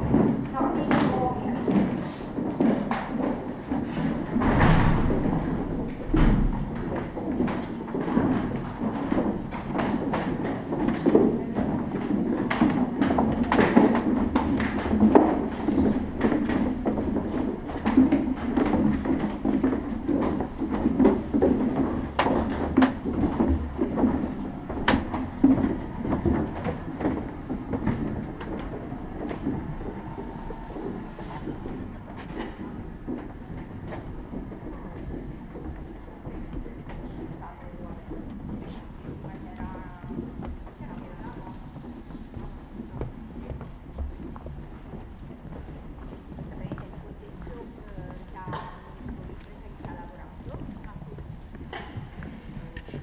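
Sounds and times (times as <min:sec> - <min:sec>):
knocks and clatter of boards: 0:00.0 - 0:37.5
footsteps on wooden planks: 0:00.0 - 0:53.0.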